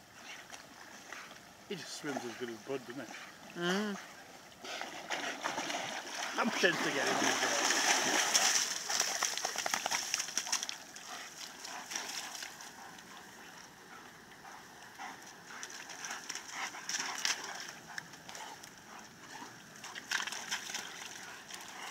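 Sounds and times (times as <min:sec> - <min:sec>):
paws tapping on wet ground: 0:04.6 - 0:21.9
dog shaking off water: 0:05.1 - 0:10.8.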